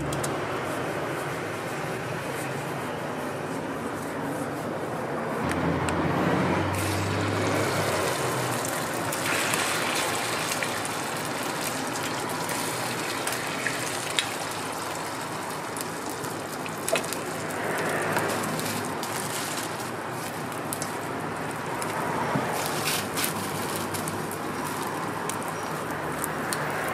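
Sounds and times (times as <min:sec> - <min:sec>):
egg sizzling on a griddle: 0:06.8 - 0:26.7.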